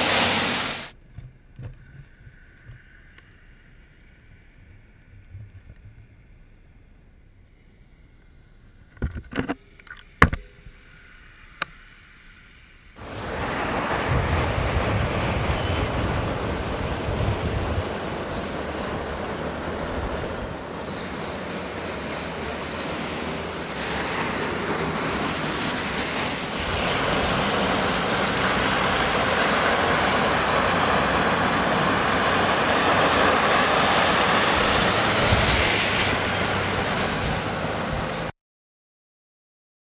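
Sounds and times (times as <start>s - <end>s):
floodwater rushing: 0.0s - 0.9s, 13.0s - 38.3s
wind on microphone: 13.0s - 38.3s.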